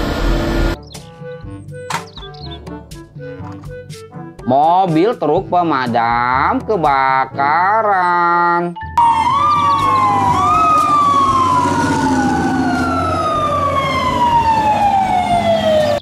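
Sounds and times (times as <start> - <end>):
fire truck siren wailing: 9.0 - 16.0.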